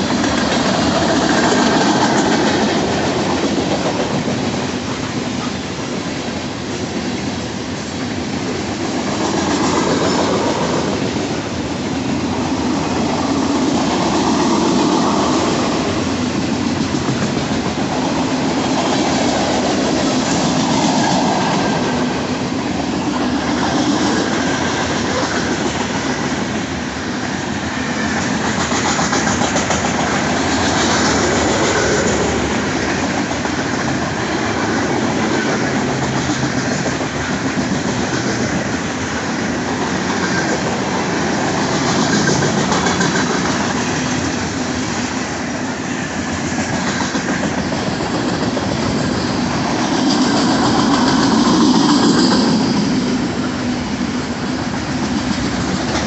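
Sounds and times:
clickety-clack over rail joints: 0.0 - 56.0
train wheels rumbling on rail: 0.0 - 56.0.

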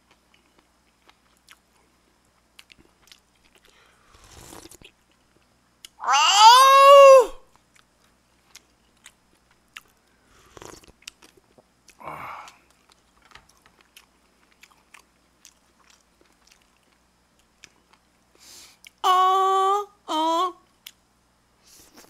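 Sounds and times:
person chewing: 0.0 - 6.1, 7.5 - 18.1
man exclaiming: 6.0 - 7.4.

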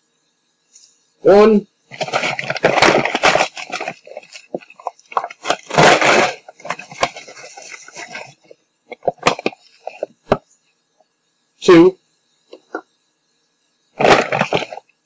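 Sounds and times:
sugar bag rustling: 1.9 - 10.2, 14.0 - 14.9.

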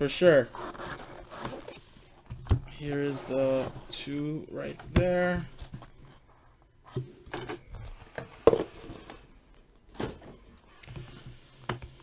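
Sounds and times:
cardboard rustling: 0.5 - 6.3.

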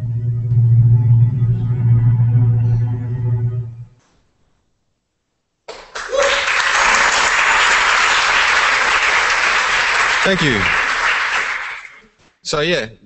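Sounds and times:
music low held note: 0.0 - 4.1
audience applauding: 5.7 - 12.1.

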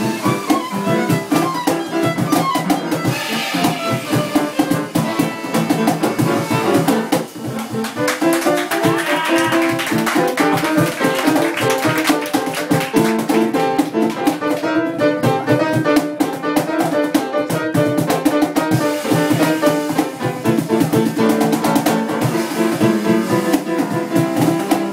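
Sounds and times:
bowed violin: 0.0 - 7.1
light percussion beat: 0.0 - 24.9
upright piano: 0.0 - 24.9.

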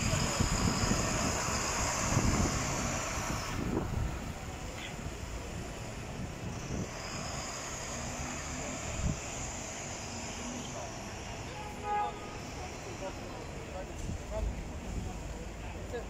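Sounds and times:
wind buffeting microphone: 0.0 - 5.3
buses and cars passing: 0.0 - 16.0.

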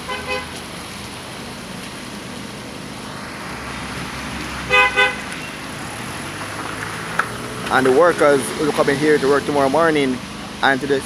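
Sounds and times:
vehicle horn toots: 0.0 - 0.5, 4.7 - 5.7
slow road traffic: 0.0 - 11.0.

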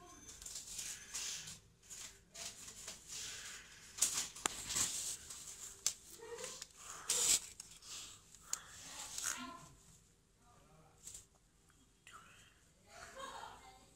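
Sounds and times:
hand rustling batteries and cables: 0.3 - 9.4.

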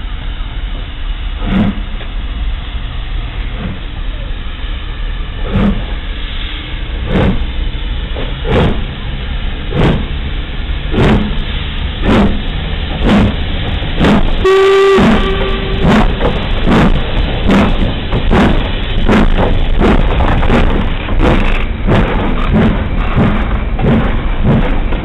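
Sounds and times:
steam locomotive exhaust beats: 0.0 - 25.0
steam whistle blast: 14.4 - 16.2.

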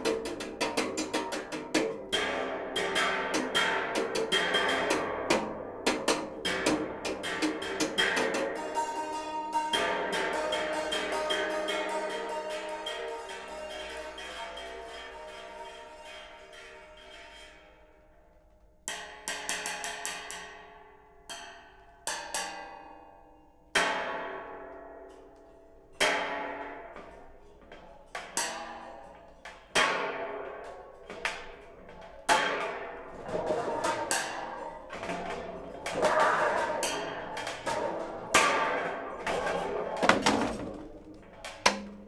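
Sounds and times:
stick tapping thin metal sheets: 27.0 - 42.0.

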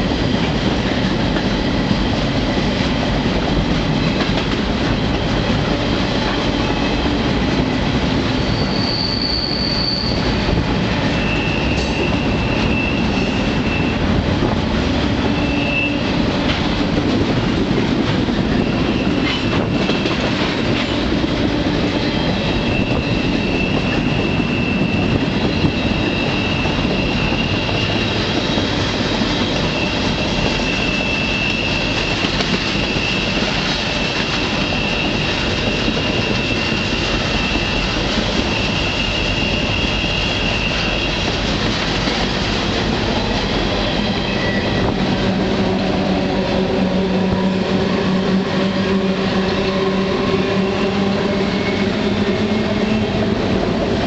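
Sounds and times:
train rolling and rattling: 0.0 - 54.0
high wheel squeal: 8.3 - 14.2, 15.2 - 16.2, 18.5 - 20.5, 21.9 - 41.5, 43.5 - 53.5.

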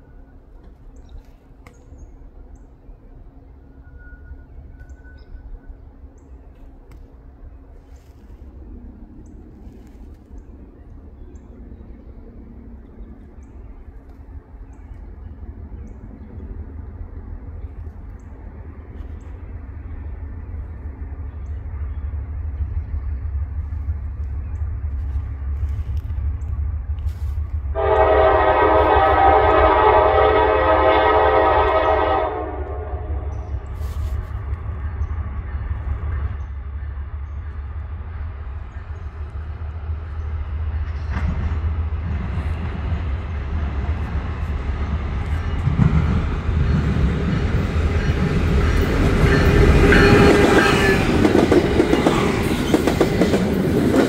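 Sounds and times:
train engine and wheel noise: 0.0 - 54.0
low rumble: 1.7 - 29.2
locomotive air horn blast: 27.1 - 34.3, 49.2 - 51.4.

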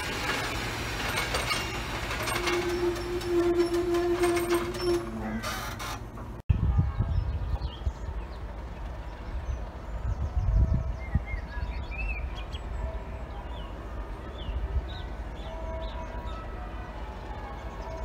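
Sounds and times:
diesel locomotive idling: 0.0 - 6.8, 7.4 - 18.0.

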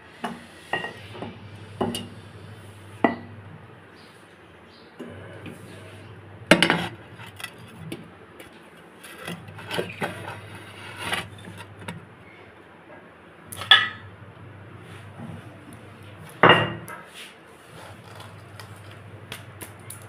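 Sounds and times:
metal utensils clattering: 13.5 - 14.1.

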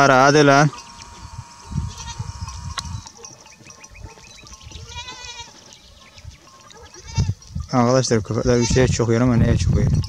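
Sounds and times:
goat bleating: 0.7 - 3.0, 4.8 - 7.4, 8.4 - 9.1.

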